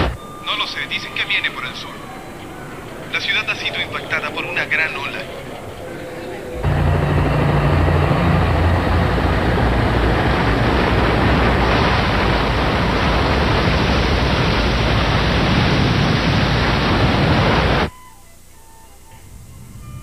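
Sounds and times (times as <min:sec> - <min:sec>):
steady rushing roar: 0:01.7 - 0:17.9
low hum: 0:05.4 - 0:20.0.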